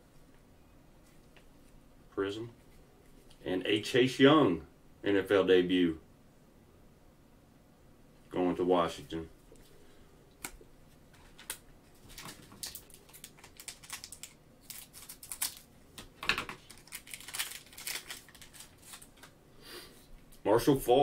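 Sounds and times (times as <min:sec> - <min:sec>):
cellophane pack crinkling and ripping: 0:11.3 - 0:19.3.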